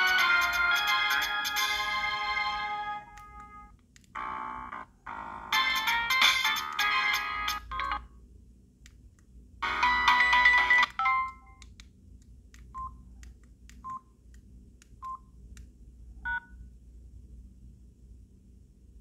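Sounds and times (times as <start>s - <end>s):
polyphonic ringtone: 0.0s - 3.6s, 4.2s - 8.1s, 9.6s - 11.6s.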